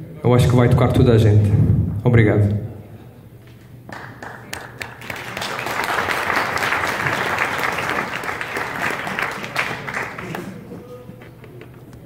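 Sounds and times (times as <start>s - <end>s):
audience applauding: 3.9s - 10.9s.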